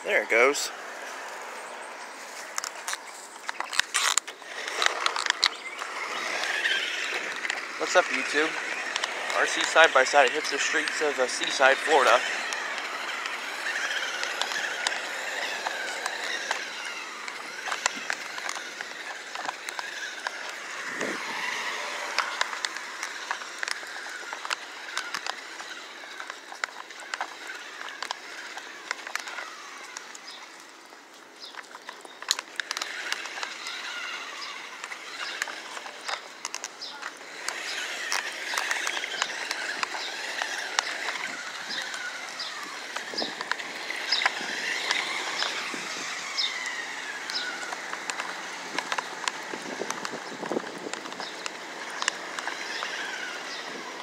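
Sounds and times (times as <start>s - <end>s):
tyres clicking over pavement: 0.0s - 54.0s
toy electric motor whining: 2.2s - 54.0s.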